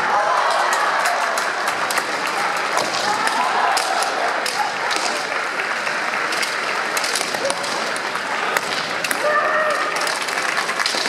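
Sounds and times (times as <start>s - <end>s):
crowd clapping: 0.0s - 11.0s
bamboo swords clacking: 0.5s - 11.0s.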